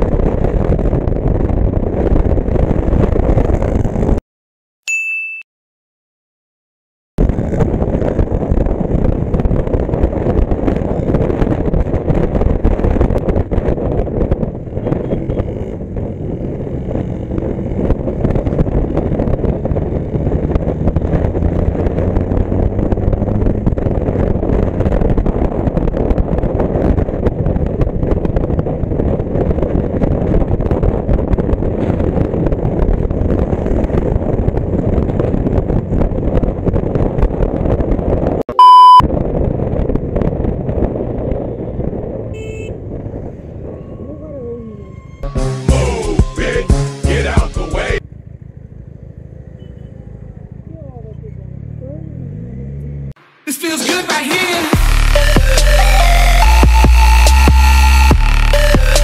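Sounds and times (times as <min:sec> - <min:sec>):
wind rush over microphone: 0:00.0 - 0:04.2, 0:07.2 - 0:45.2
motorcycle engine running: 0:07.2 - 0:38.4, 0:47.8 - 0:53.2.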